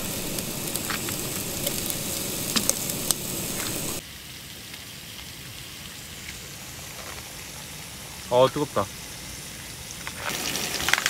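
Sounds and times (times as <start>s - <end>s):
sharp pops: 0.0s - 4.0s
food sizzling in a pan: 0.0s - 11.0s
steady hiss: 0.0s - 11.0s.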